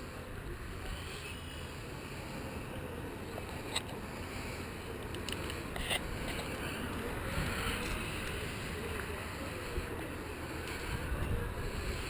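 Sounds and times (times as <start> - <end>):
wind buffeting microphone: 6.0 - 12.0.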